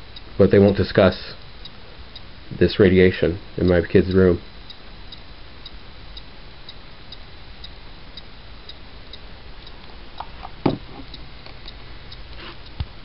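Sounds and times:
meter ticking: 0:00.0 - 0:10.4, 0:11.1 - 0:12.9
knock: 0:10.6 - 0:10.8.

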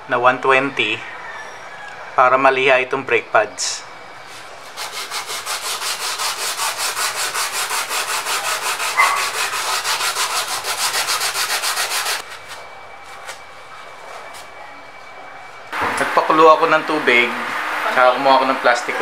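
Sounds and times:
brake pad scraping on sandpaper: 0:04.3 - 0:13.4.

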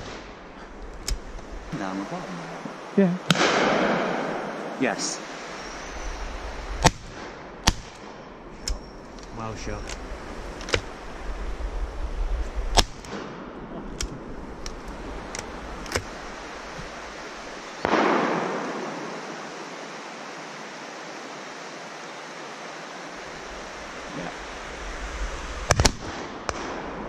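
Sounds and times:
shotguns firing: 0:03.3 - 0:04.5, 0:17.8 - 0:18.8
heavy blast with echo: 0:03.3 - 0:05.0, 0:17.8 - 0:19.1.

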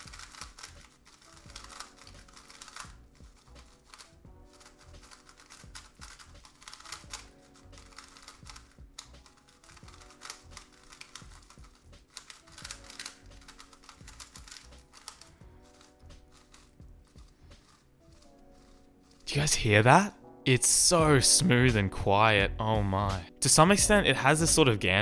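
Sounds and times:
rapid plastic clicks of puzzle cube: 0:00.0 - 0:19.3
soft background music: 0:00.0 - 0:25.0.

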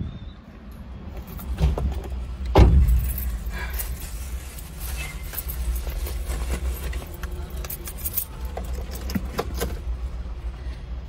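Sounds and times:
steady low rumble: 0:00.0 - 0:11.0
rustling and light clicks: 0:01.2 - 0:09.9.

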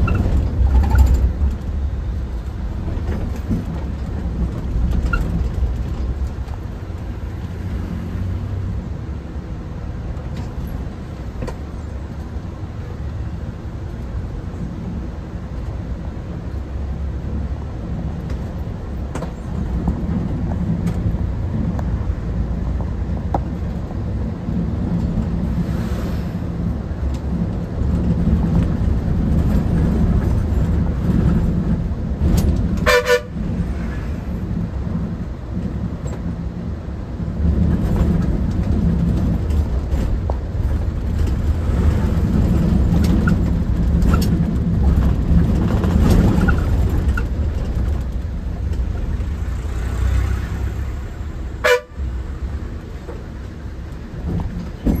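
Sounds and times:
bus engine rumbling: 0:00.0 - 0:55.0
vehicle horn: 0:32.8 - 0:33.4, 0:51.6 - 0:52.1.

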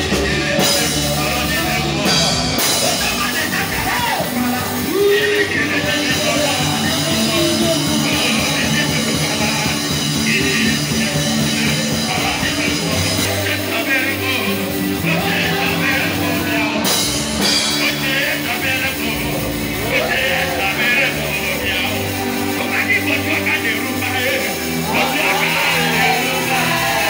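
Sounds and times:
instrumental backing music: 0:00.0 - 0:27.0
people singing into microphones: 0:00.0 - 0:27.0.

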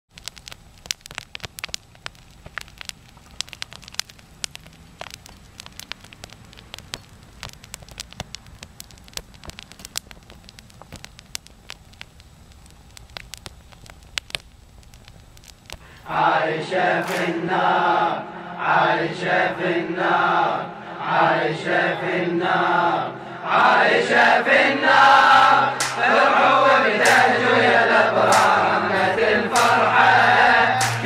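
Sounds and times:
fire crackling and popping: 0:00.1 - 0:21.7, 0:22.6 - 0:31.0
low steady rumble: 0:22.4 - 0:31.0.

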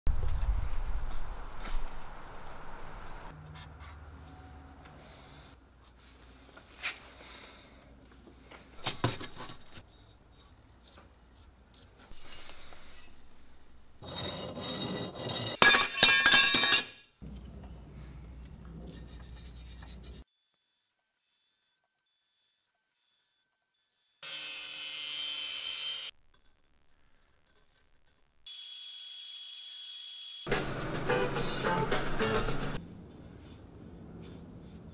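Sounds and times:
file scraping on steel: 0:09.8 - 0:15.6, 0:18.8 - 0:20.3
steel pieces clinking: 0:12.1 - 0:17.0.

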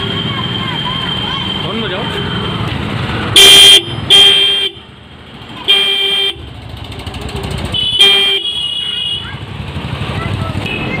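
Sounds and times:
car horn toots: 0:07.8 - 0:09.3.

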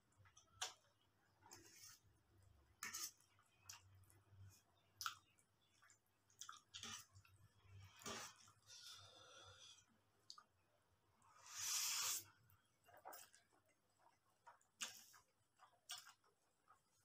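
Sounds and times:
chewing: 0:05.0 - 0:08.6, 0:12.8 - 0:16.9.

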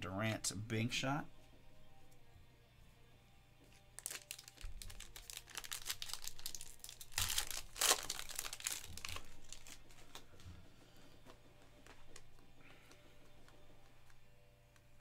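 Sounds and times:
foil wrapper crinkling and tearing: 0:04.0 - 0:10.2.

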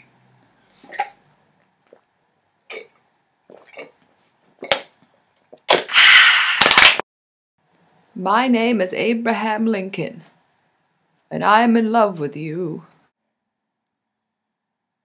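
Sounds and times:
person gulping from plastic bottle: 0:02.7 - 0:04.0
harsh breathy aaah: 0:05.9 - 0:06.9.

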